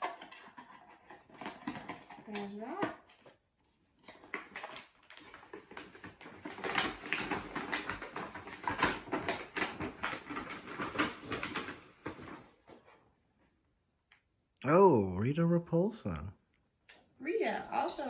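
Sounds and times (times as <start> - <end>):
paper bag rustling: 4.2 - 13.0.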